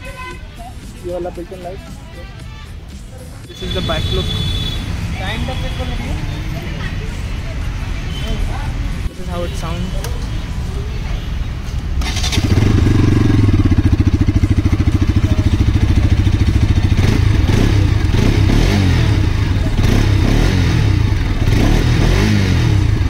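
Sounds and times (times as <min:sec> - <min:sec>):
motorcycle engine idling: 0:12.0 - 0:21.9.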